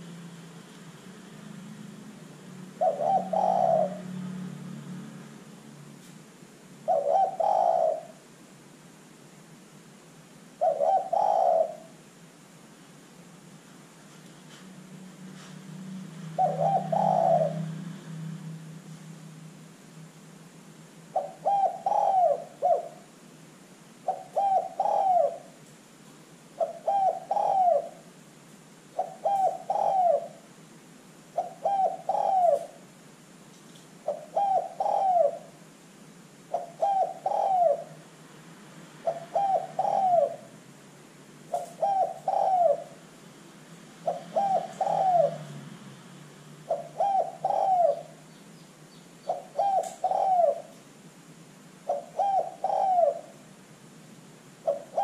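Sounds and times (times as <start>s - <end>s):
dove cooing: 1.4s - 4.6s, 6.8s - 8.2s, 10.6s - 12.0s, 16.2s - 18.3s, 21.1s - 23.1s, 24.0s - 25.6s, 26.6s - 28.1s, 28.9s - 30.5s, 31.3s - 32.8s, 34.0s - 35.6s, 36.5s - 38.1s, 39.0s - 40.6s, 41.5s - 43.0s, 44.0s - 45.7s, 46.6s - 48.3s, 49.2s - 50.8s, 51.8s - 53.5s, 54.6s - 55.0s.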